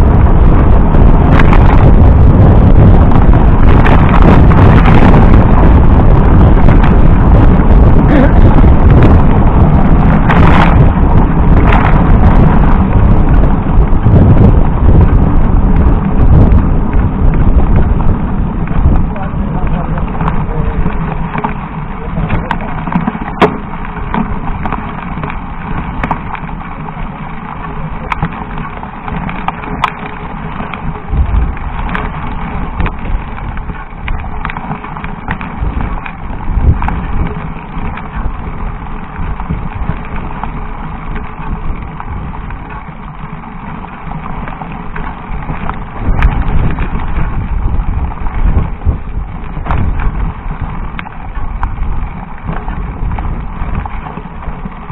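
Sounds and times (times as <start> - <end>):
low thumps: 0.0 - 26.5, 44.8 - 54.9
bike rattling: 0.0 - 54.9
tyres crunching over loose stones: 0.1 - 54.9.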